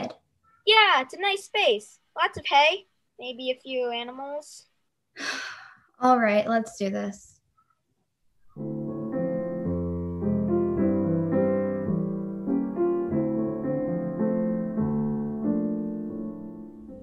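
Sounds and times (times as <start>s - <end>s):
piano playing slow chords: 8.6s - 17.0s.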